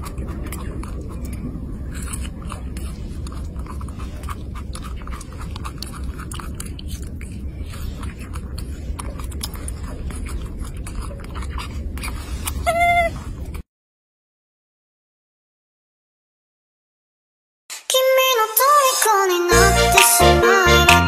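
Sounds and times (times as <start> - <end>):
low rumble: 0.0 - 13.6
monkey chewing with mouth clicks: 0.0 - 13.6.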